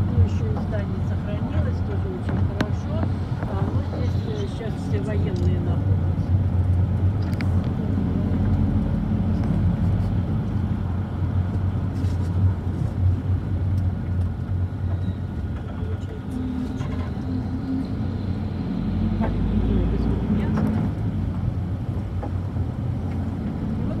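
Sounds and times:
car engine hum: 0.0 - 24.0.

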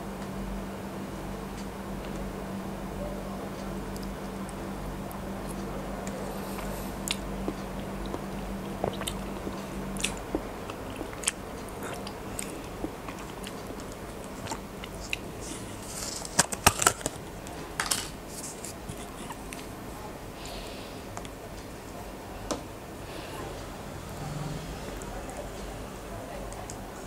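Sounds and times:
wet chewing: 5.4 - 17.3.

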